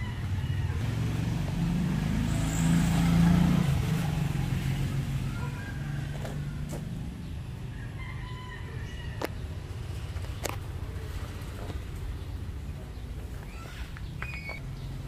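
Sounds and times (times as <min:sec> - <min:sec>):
vehicle engine passing by: 0:00.0 - 0:08.4.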